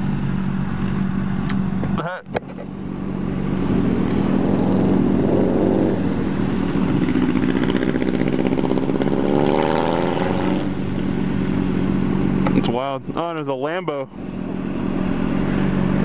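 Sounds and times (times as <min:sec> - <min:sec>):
motorcycles idling: 0:00.0 - 0:09.3, 0:10.6 - 0:16.0
vehicle engine revving away: 0:03.0 - 0:12.6.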